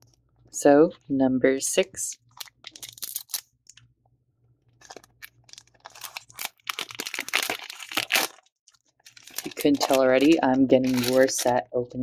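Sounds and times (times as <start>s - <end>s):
foil wrapper crinkling and tearing: 2.2s - 3.8s, 4.8s - 11.6s.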